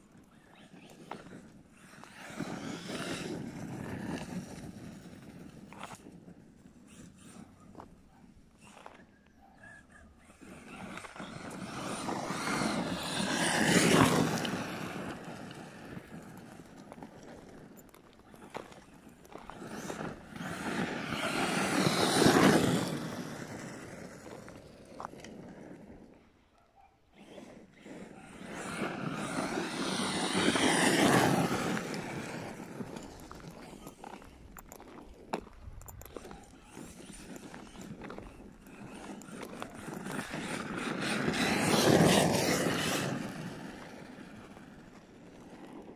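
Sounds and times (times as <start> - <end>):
electric rc truck driving past: 0.0 - 45.9.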